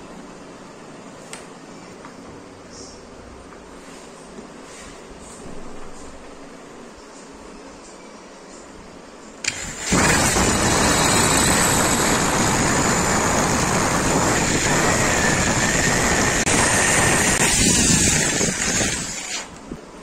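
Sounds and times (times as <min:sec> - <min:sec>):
electric drill boring wood: 0:09.4 - 0:19.6.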